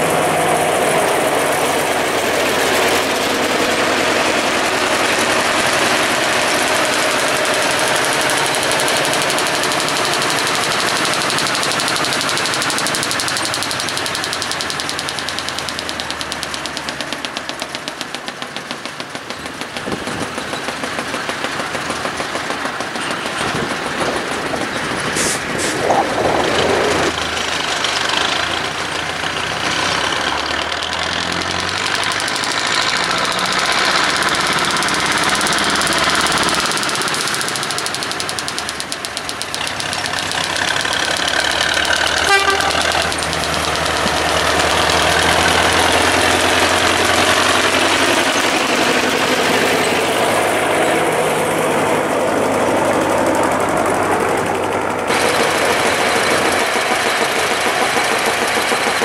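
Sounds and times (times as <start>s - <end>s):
diesel locomotive knocking: 0.0s - 59.0s.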